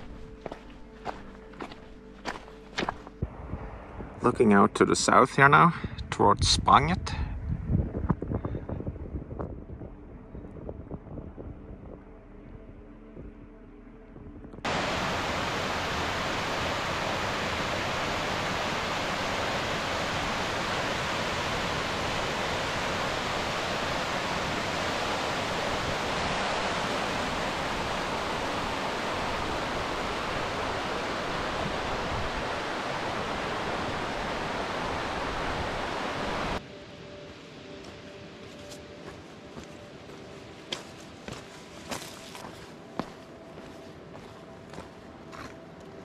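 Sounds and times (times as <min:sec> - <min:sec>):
stream cascading over rocks: 0:14.7 - 0:39.3.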